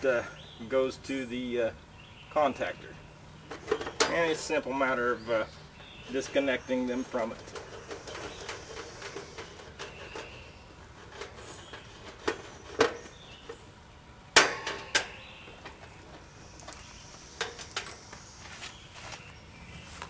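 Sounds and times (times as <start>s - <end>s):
sharp clicks and clinks of wires: 14.4s - 18.2s.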